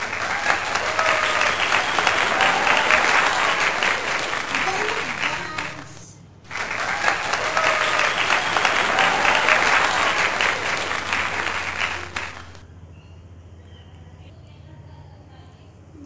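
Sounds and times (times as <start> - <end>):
crowd applause: 0.0 - 12.6.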